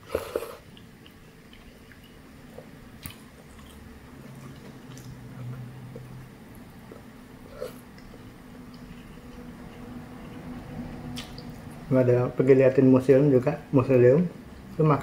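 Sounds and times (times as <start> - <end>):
soft chewing: 0.0 - 11.9.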